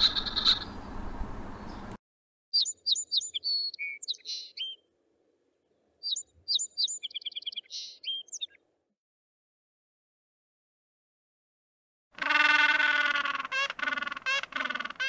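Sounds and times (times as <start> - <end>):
songbird chirping and trilling: 0.0 - 0.9, 1.5 - 2.0, 2.6 - 4.9, 5.6 - 8.8.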